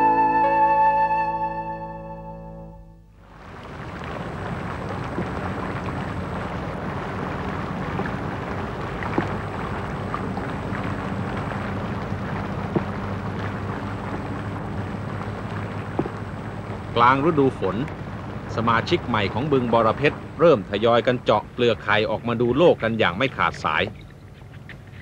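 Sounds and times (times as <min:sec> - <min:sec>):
rain falling on water: 0:03.2 - 0:25.0
sharp drip taps: 0:05.0 - 0:06.0, 0:08.9 - 0:09.5, 0:12.0 - 0:14.3, 0:15.8 - 0:16.3.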